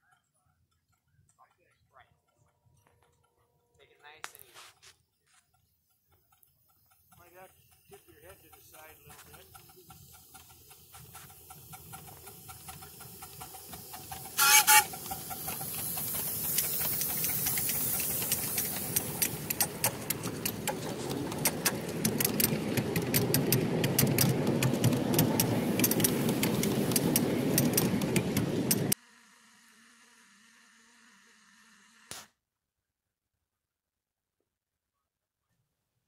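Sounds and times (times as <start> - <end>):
model train rumbling on track: 0.0 - 32.1
sharp clicks: 6.3 - 29.0
steam locomotive whistle: 14.1 - 15.6.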